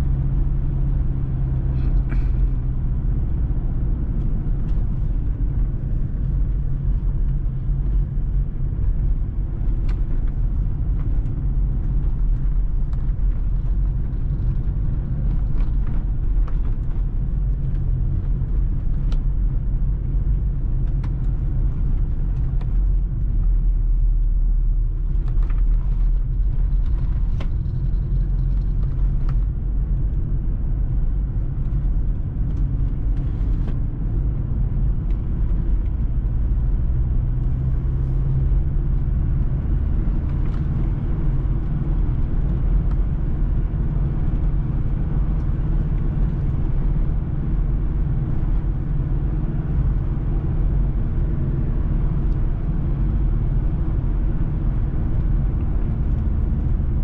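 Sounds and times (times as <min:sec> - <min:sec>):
car cabin rumble: 0:00.0 - 0:57.0.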